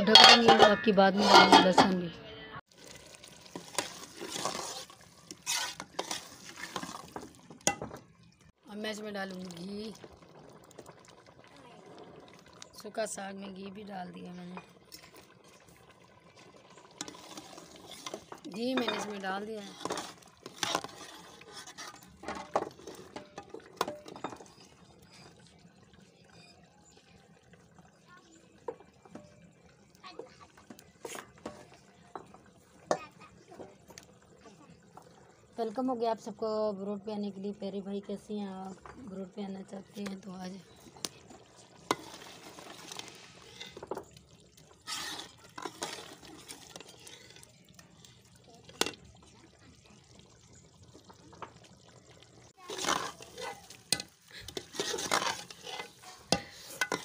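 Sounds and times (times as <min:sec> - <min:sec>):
ladle stirring thick greens in pot: 0:00.0 - 0:02.0, 0:02.7 - 0:08.1, 0:14.4 - 0:25.7, 0:30.4 - 0:33.0, 0:39.9 - 0:49.2, 0:52.5 - 0:57.0
wood fire crackles and knocks: 0:05.8 - 0:08.1.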